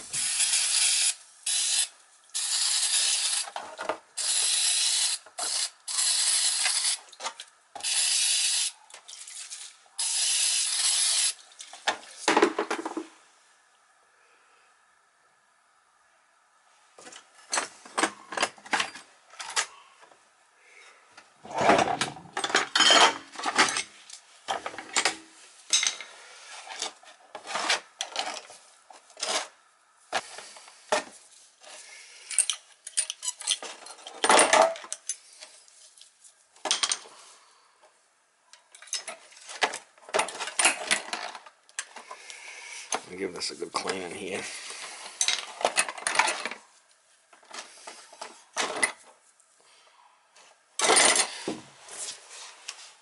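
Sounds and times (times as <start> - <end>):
screwdriver and metal parts clinking: 22.4 - 23.9, 32.3 - 35.2, 38.7 - 41.9.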